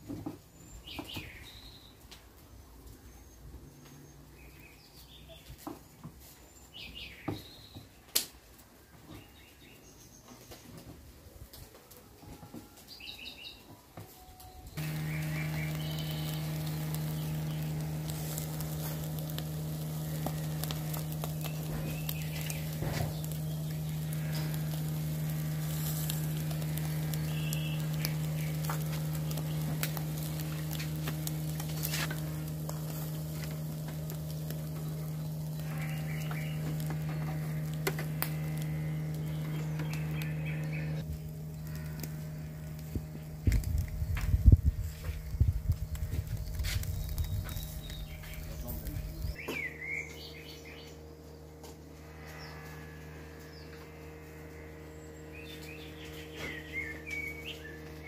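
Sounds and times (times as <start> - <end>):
steady low hum: 14.1 - 58.0
charcoal crackling: 14.4 - 58.0
meat sizzling: 14.8 - 49.4
loud low rumble: 14.8 - 58.0.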